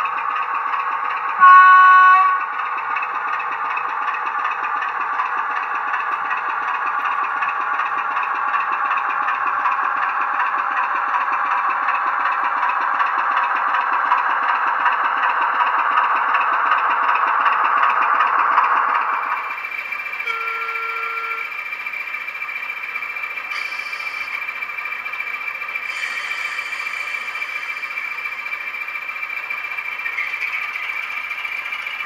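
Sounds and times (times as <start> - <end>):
model diesel engine sound from speaker: 0.0 - 32.0.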